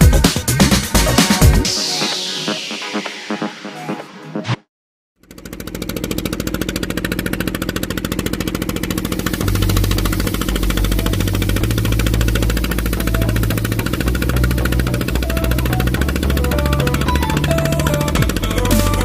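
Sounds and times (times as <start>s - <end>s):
music with deep bass line: 0.0s - 2.6s, 9.2s - 19.0s
engine chugging: 5.2s - 19.0s.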